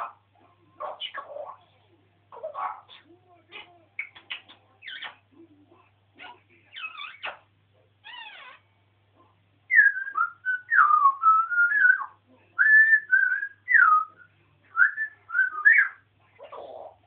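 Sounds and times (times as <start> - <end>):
parrot whistling: 9.7 - 16.0.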